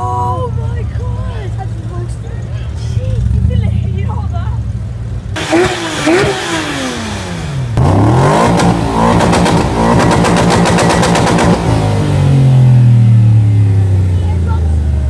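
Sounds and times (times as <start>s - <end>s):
car engine revving: 4.8s - 15.0s.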